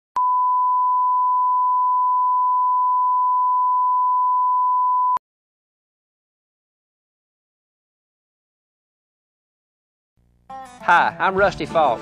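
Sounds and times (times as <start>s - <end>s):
pure sine tone: 0.2s - 5.2s.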